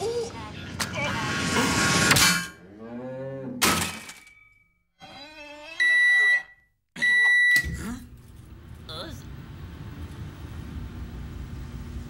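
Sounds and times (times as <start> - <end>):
microwave oven beep: 5.8 - 7.9.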